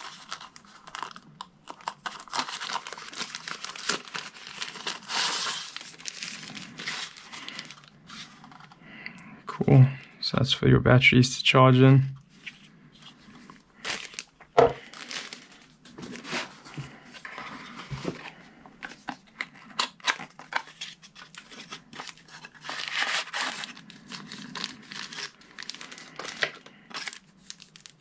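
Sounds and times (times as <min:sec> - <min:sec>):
plastic wrap and cardboard crinkling: 0:00.0 - 0:08.8, 0:12.2 - 0:28.0
items knocking when set down: 0:14.6 - 0:14.8.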